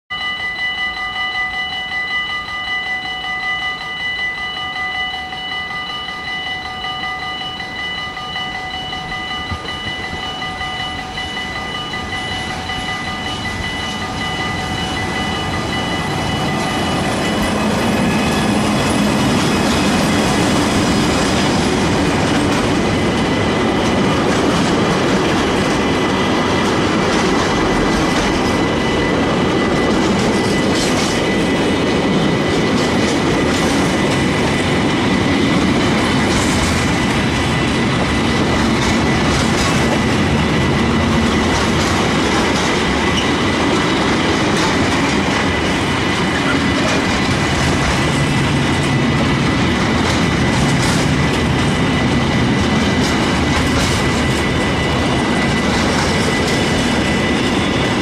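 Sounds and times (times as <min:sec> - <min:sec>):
level crossing bell ringing: 0:00.1 - 0:36.2
locomotive passing: 0:01.6 - 0:58.0
train wheels clickety-clack: 0:03.0 - 0:58.0.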